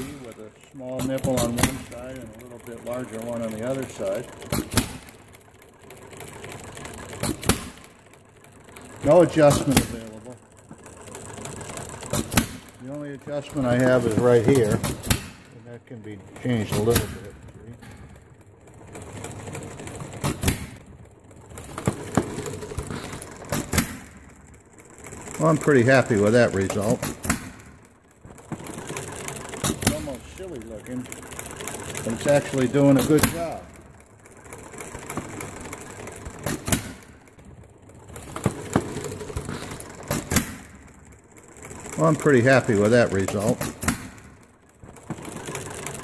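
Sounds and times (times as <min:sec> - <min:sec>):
engine mechanical clatter: 0:00.0 - 0:46.0
gas engine sharp pops: 0:14.8 - 0:15.5, 0:27.0 - 0:27.6.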